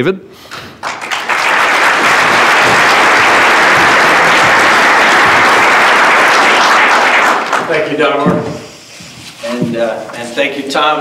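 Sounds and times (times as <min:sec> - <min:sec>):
audience applauding: 0:00.8 - 0:08.2.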